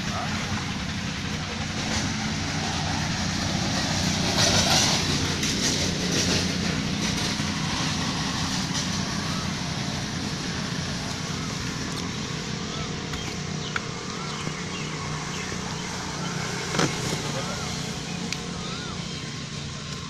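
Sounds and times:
engine droning: 0.0 - 20.0.

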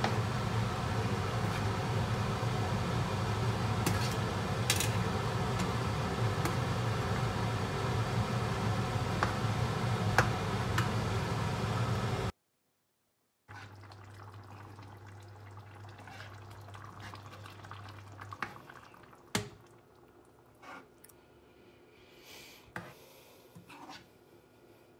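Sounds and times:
kitchen fan humming: 0.0 - 12.3.

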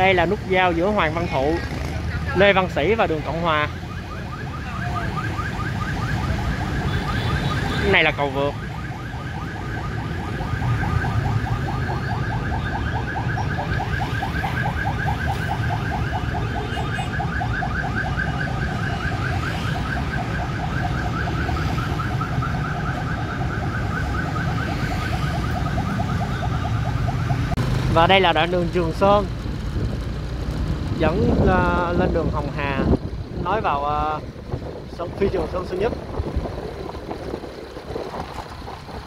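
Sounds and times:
warbling electronic alarm: 2.4 - 27.5.

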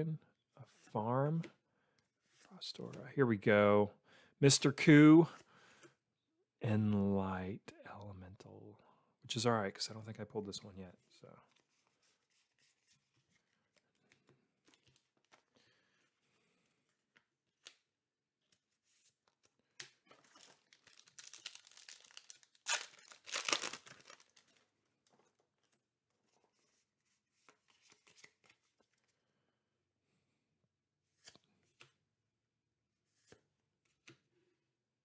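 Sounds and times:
trading cards being handled: 11.5 - 15.6, 18.5 - 25.4, 27.4 - 29.1
foil wrapper tearing and crinkling: 20.2 - 24.5.

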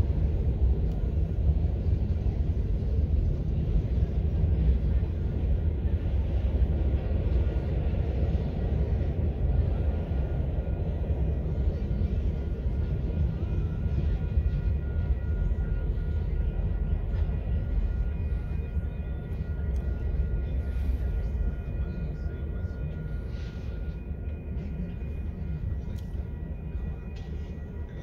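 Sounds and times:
distant diesel train rumble: 0.0 - 28.0
faint steady whine: 0.0 - 28.0.

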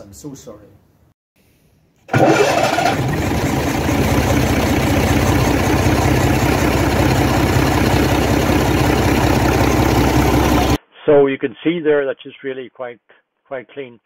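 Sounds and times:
diesel engine starting and idling: 2.1 - 10.8.

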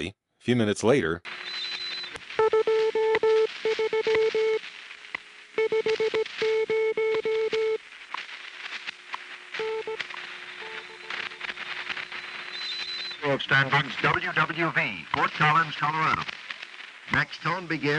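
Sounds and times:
crackling static: 1.2 - 17.9
radio time signal tone: 1.3 - 4.7, 5.5 - 7.9, 8.7 - 16.3
faint low steady whistle: 1.4 - 2.2, 12.1 - 13.3.

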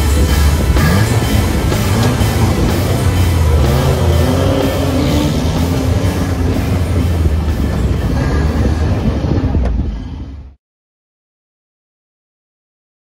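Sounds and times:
background music: 0.0 - 9.6
jeep driving on rough road: 0.0 - 10.6.

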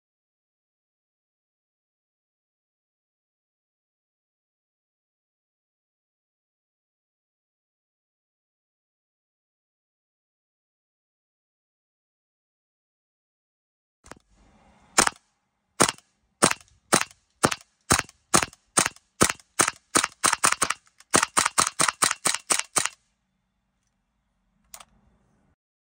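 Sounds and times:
suppressed airsoft rifle shots: 15.0 - 15.2, 15.8 - 23.0.

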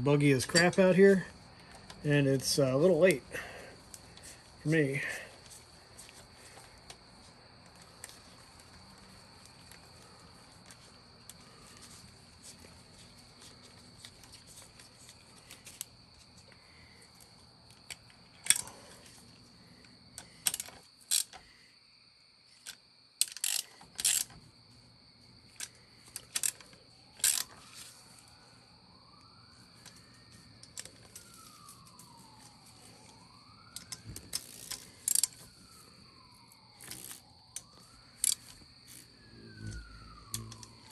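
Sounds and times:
night insects chirring: 0.0 - 40.9
socket ratchet clicking: 22.6 - 24.3
siren wailing: 27.1 - 40.9.

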